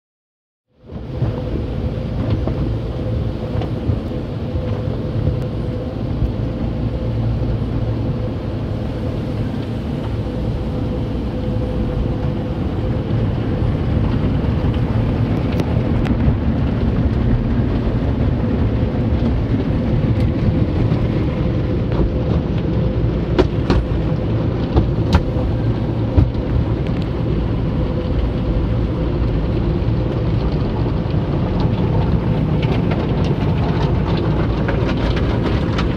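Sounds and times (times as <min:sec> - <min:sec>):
constant hum: 0:00.7 - 0:35.9
car wash brushes slapping: 0:23.2 - 0:27.0.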